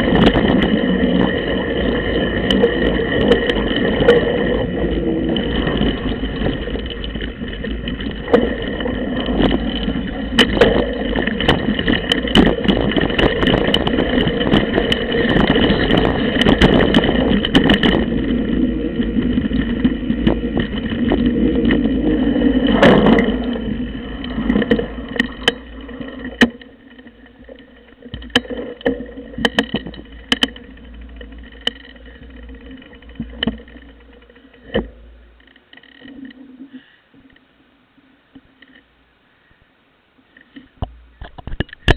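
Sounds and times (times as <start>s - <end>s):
bike tyres rumbling over dirt: 0.0s - 36.9s
clicks and knocks: 24.2s - 36.4s.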